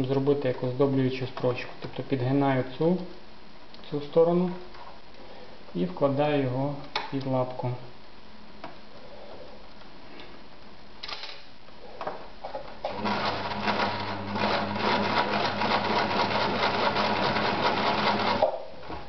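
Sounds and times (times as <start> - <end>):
sewing machine running: 12.9 - 18.4.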